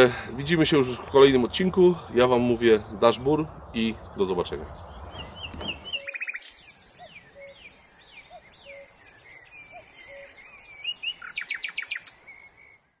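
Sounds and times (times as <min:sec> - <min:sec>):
birds chirping and trilling: 0:00.0 - 0:13.0
low short bird call: 0:04.8 - 0:06.5.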